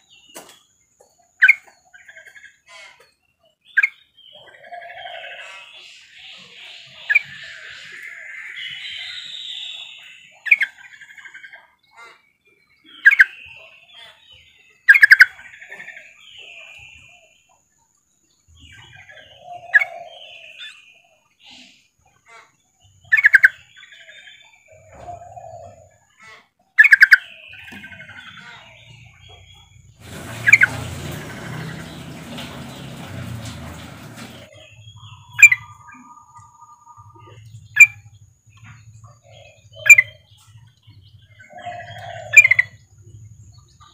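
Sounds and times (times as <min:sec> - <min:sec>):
rushing noise: 0:30.0 - 0:34.5.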